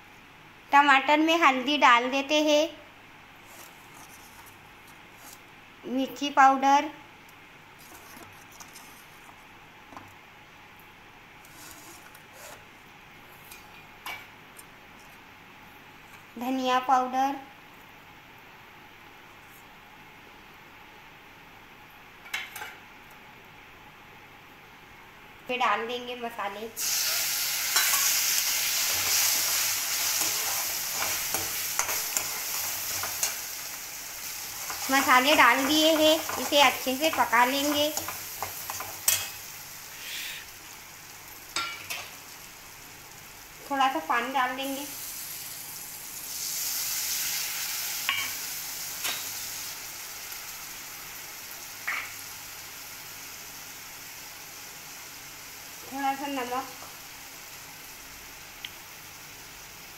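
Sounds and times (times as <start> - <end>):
food sizzling in hot oil: 26.8 - 59.9.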